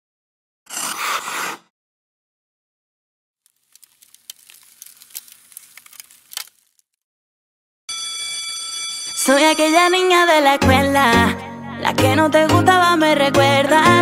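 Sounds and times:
ice crackling with sharp clicks: 0:03.5 - 0:07.0.

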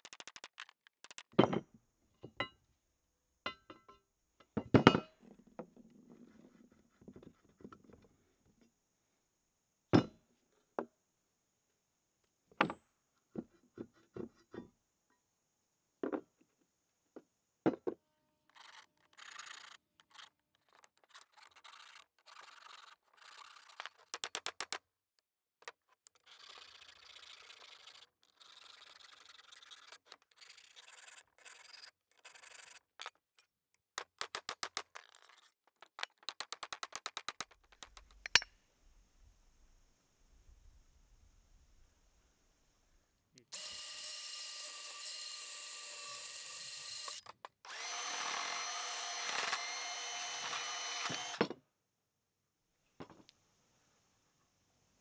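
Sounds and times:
quick run of clicks: 0:00.0 - 0:01.4, 0:18.5 - 0:24.8, 0:34.0 - 0:38.4
hand file rasping on metal: 0:26.1 - 0:32.9.

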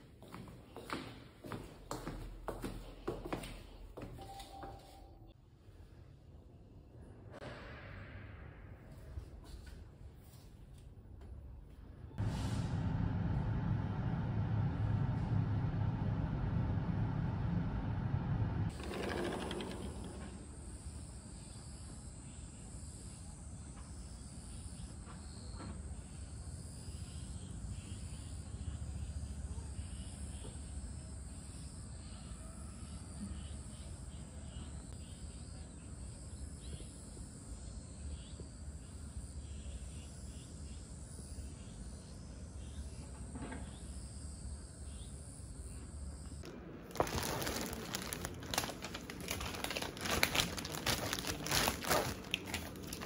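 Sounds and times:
low hum: 0:11.6 - 0:21.0, 0:46.4 - 0:53.0
crickets chirping: 0:18.7 - 0:53.0.

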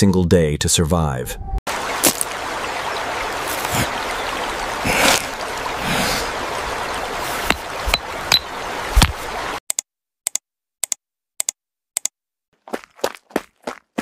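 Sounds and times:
river running over stones: 0:01.7 - 0:09.6.

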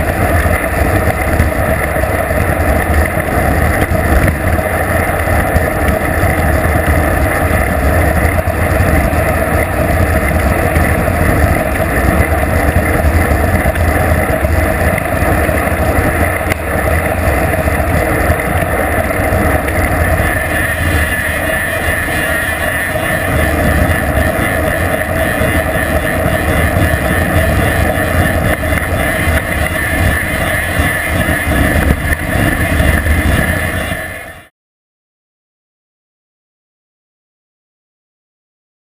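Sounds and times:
wind buffeting microphone: 0:00.0 - 0:34.4
road and tyre noise: 0:00.0 - 0:34.5.

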